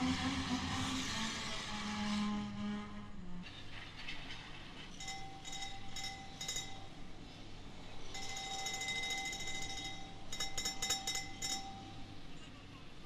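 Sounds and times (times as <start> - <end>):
model train wheels squealing: 0.0 - 4.1
wheels clicking over rail joints: 3.4 - 7.4, 8.0 - 12.5.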